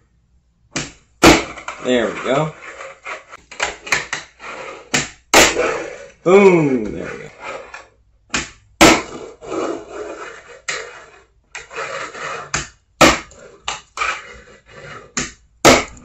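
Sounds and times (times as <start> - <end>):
toy wheels rolling on table: 9.2 - 12.6.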